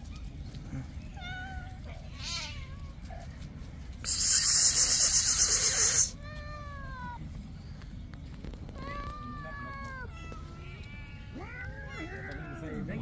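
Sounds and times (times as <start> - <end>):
cats meowing: 0.2 - 3.4, 4.1 - 7.9, 8.6 - 13.0
harsh hissing rush of noise: 4.0 - 6.2.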